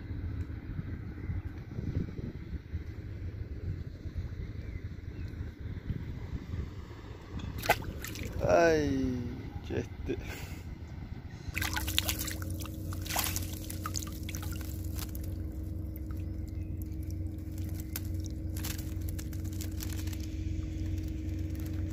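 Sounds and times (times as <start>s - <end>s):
steady low hum: 0.0s - 21.9s
water pouring and dripping off net: 7.6s - 8.4s, 11.6s - 21.9s
water splashes: 7.6s - 8.4s, 11.5s - 20.3s.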